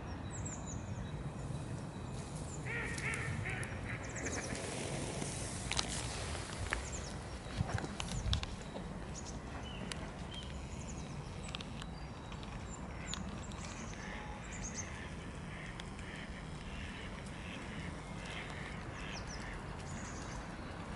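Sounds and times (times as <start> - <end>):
small birds chirping: 0.0 - 20.9
ducks calling softly: 2.6 - 5.0, 12.5 - 20.9.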